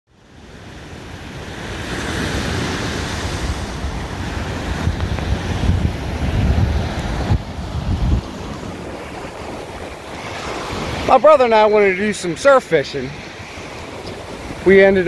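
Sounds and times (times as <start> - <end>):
ocean surf on sand: 0.1 - 15.0
wind gusting on microphone: 0.3 - 15.0.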